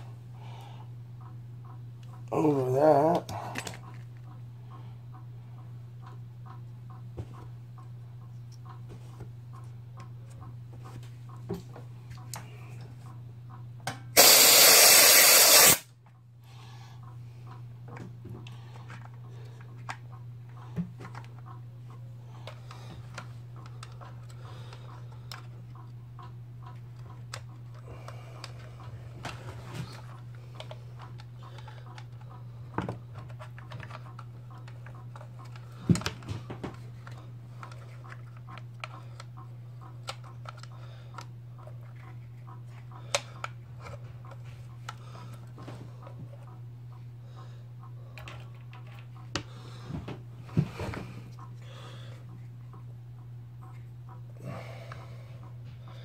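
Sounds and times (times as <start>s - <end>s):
steady low hum: 0.0s - 56.0s
loud hiss: 14.2s - 15.8s
small clicks and taps on housing: 40.0s - 42.2s.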